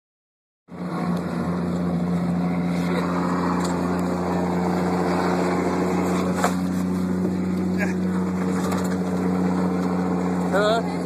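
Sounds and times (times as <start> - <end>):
road and wind rush: 0.7 - 11.0
truck engine drone: 0.7 - 11.0.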